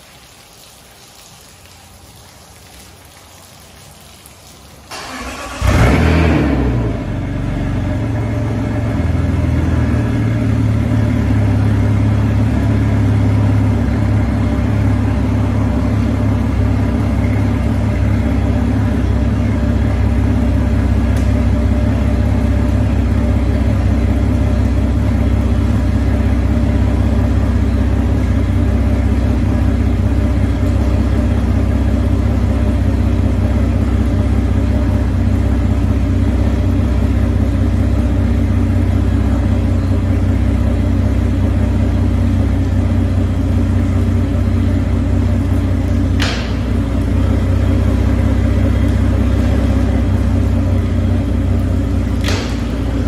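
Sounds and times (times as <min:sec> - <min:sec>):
outboard engines running: 0:04.9 - 0:53.0.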